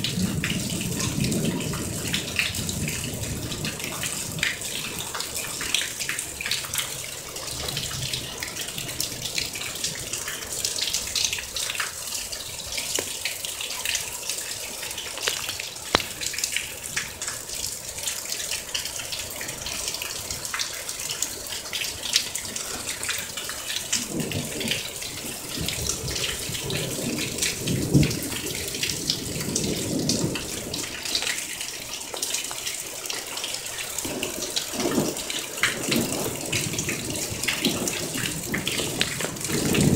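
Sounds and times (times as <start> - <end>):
low thunder rumble: 0.0 - 5.7, 23.7 - 31.3, 34.0 - 39.9
heavy rain splashing: 0.0 - 39.9.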